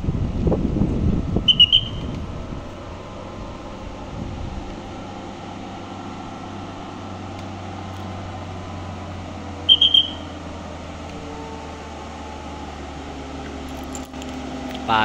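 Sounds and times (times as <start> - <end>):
diesel truck engine droning: 0.0 - 15.0
short high-pitched beeps: 9.7 - 10.3.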